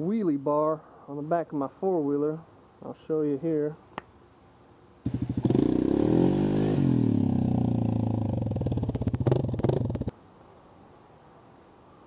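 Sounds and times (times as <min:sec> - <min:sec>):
atv engine revving: 0:05.1 - 0:10.1.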